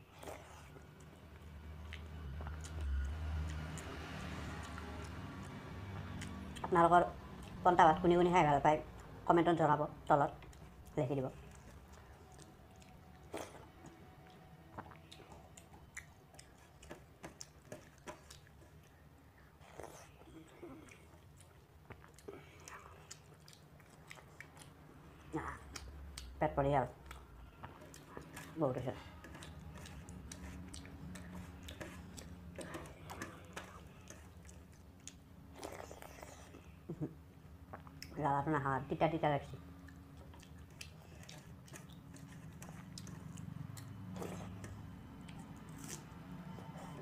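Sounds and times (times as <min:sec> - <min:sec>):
person chewing: 0:00.0 - 0:07.6, 0:10.4 - 0:26.4, 0:27.0 - 0:38.1, 0:39.7 - 0:47.0
faint low hum: 0:00.0 - 0:47.0
wet squishing of rice: 0:39.8 - 0:46.9.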